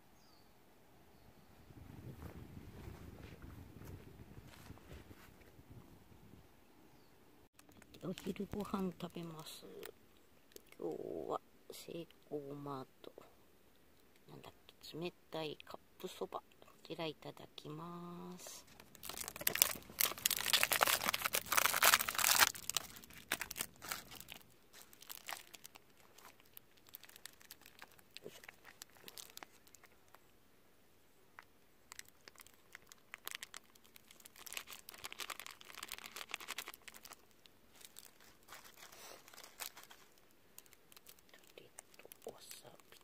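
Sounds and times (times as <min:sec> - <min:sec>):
small rustles and clicks: 0:07.6 - 0:08.6, 0:18.5 - 0:30.4, 0:31.3 - 0:43.0
plastic packaging crinkling: 0:07.6 - 0:08.8, 0:18.6 - 0:30.2, 0:31.9 - 0:43.0.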